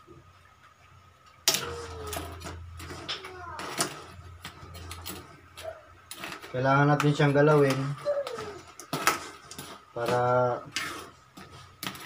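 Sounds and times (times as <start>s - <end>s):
metal spatula scraping in a wok: 1.5s - 12.0s
child's voice: 1.6s - 4.1s, 7.8s - 8.7s.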